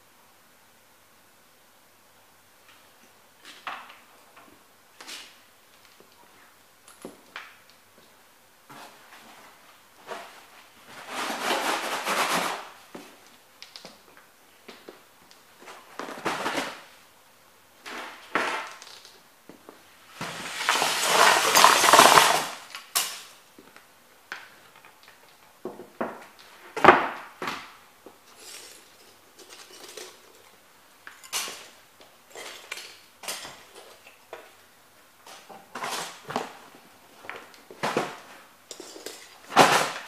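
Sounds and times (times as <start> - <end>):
plastic pieces clattering into box: 20.4 - 23.3.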